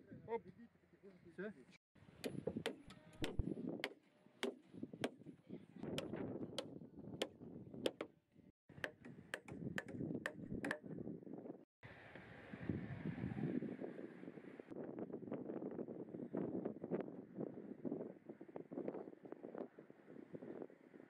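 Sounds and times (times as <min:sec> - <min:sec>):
hammer striking nails: 0:02.2 - 0:05.2, 0:05.9 - 0:08.2, 0:08.8 - 0:10.8.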